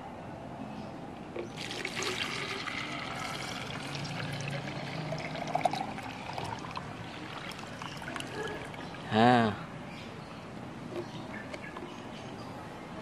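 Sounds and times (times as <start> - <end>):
water pouring into plastic bottle: 1.5 - 9.1.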